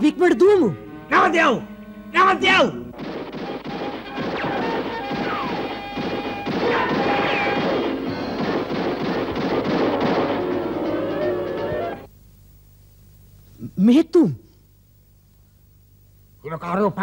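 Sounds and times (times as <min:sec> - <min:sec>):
background music: 0:00.0 - 0:12.1
musket shots: 0:02.9 - 0:10.8.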